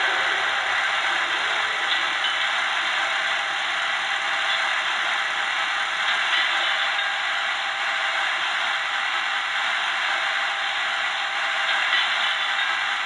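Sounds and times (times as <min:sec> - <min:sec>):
rattling hiss from small loudspeaker: 0:00.0 - 0:08.7.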